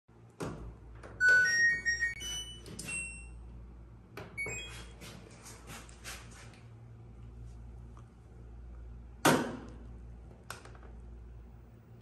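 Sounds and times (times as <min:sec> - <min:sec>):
washing machine rising beeps: 0:01.1 - 0:03.7, 0:04.3 - 0:05.1.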